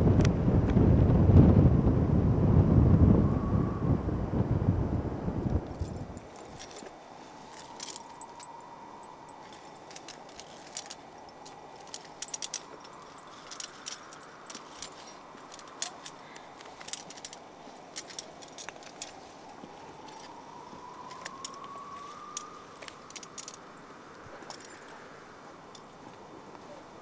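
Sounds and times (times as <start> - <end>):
metal climbing gear clinking: 5.5 - 26.4
faint wavering tone: 5.6 - 27.0.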